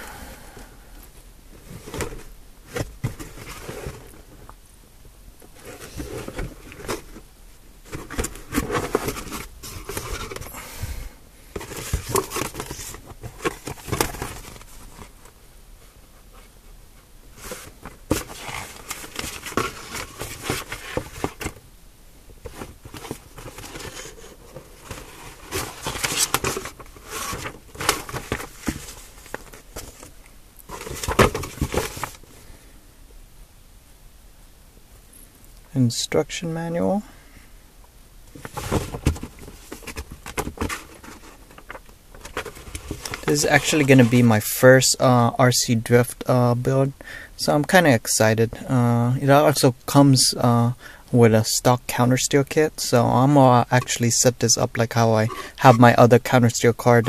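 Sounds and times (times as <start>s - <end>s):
packaging rustling and crinkling: 7.8s - 10.6s, 11.5s - 15.3s, 17.4s - 21.6s, 22.4s - 32.2s, 38.3s - 44.3s.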